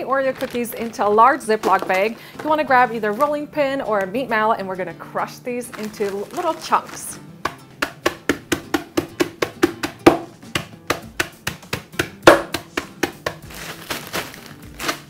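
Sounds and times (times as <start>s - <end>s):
meat mallet pounding cookies in bag: 5.7s - 15.0s.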